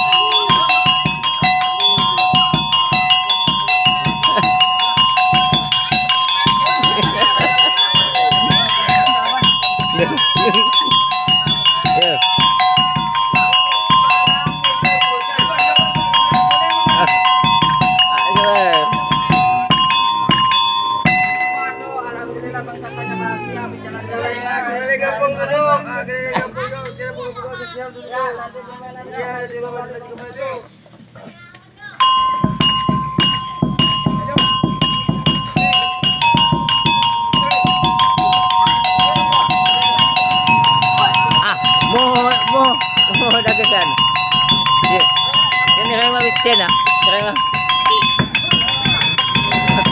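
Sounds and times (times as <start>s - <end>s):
hand drum beating: 0.0s - 23.1s, 32.0s - 49.9s
metal gamelan percussion: 0.0s - 30.0s, 31.9s - 49.9s
hand drum strokes: 32.0s - 49.9s.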